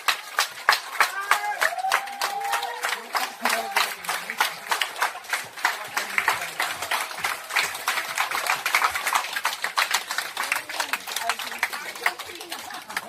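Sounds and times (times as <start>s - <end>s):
crowd clapping: 0.0s - 13.0s.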